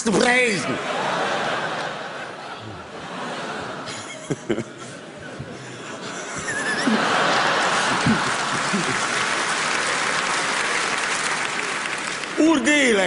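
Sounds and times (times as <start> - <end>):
audience applauding: 6.8 - 13.0.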